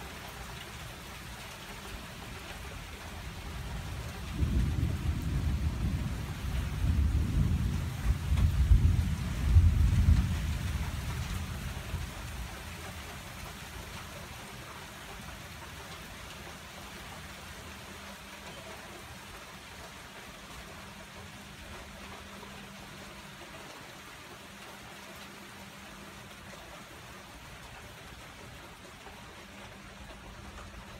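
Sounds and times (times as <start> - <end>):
heavy rain pouring: 0.0 - 30.9
low rumble of thunder: 3.3 - 13.5.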